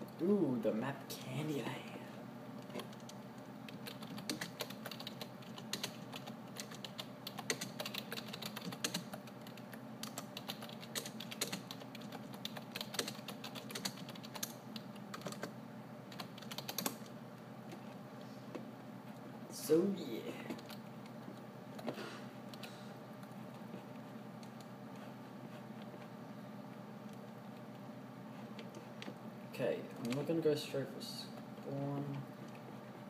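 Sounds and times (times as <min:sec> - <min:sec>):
steady low hum: 0:00.0 - 0:33.0
keyboard typing: 0:02.6 - 0:17.1, 0:20.5 - 0:26.1, 0:30.0 - 0:30.3.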